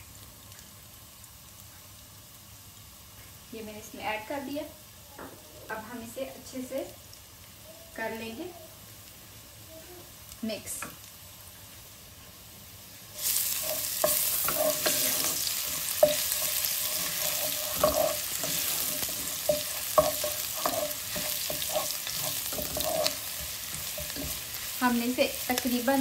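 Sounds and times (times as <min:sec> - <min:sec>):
garlic sizzling in hot oil: 0:00.0 - 0:26.0
wooden spatula scraping pot: 0:13.2 - 0:26.0.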